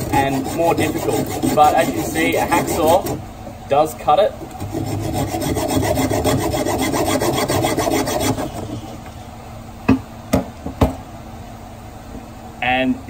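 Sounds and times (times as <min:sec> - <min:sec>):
hacksaw rasping through coral: 0:00.0 - 0:03.2, 0:04.4 - 0:08.9.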